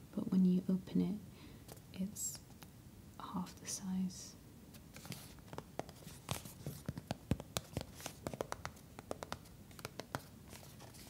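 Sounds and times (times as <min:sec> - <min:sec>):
fingernails tapping on cardboard: 0:06.7 - 0:10.3.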